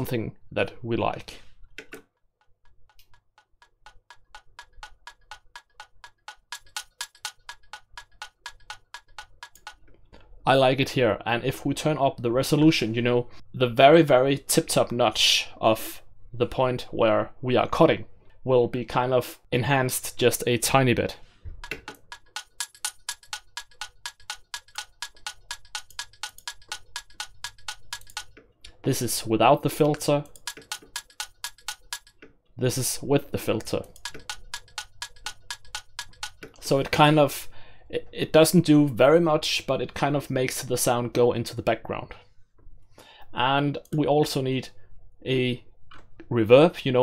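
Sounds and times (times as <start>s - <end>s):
filtered clock ticking loop: 1.6s - 10.8s, 19.9s - 37.5s.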